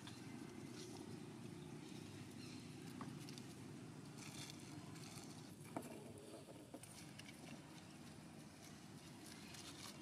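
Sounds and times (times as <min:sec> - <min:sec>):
dry leaves rustling: 0:01.8 - 0:05.5, 0:07.0 - 0:10.0.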